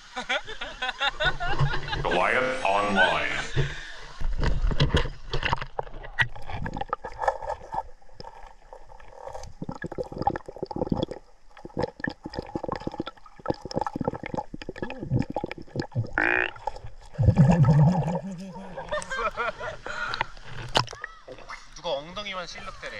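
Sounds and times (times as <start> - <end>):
underwater clicks and knocks: 3.6 - 18.1, 20.2 - 21.4
muffled underwater gurgling: 8.2 - 19.0.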